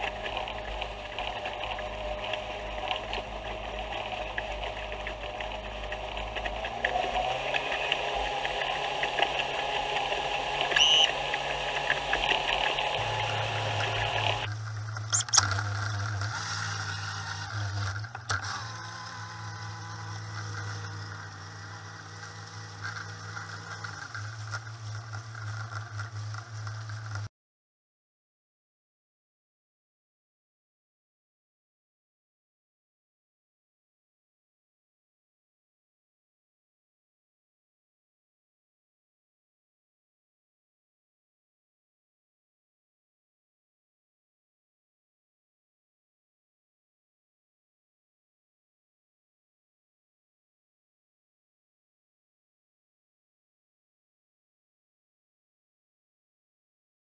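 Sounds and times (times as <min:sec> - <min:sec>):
outboard motor running: 0:00.0 - 0:27.3.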